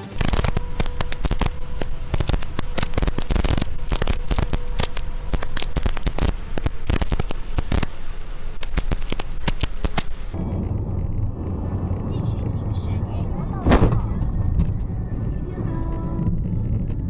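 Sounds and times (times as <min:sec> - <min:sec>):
heavy rain on vehicle windshield: 0:00.2 - 0:12.9
faint steady hum: 0:00.2 - 0:17.0.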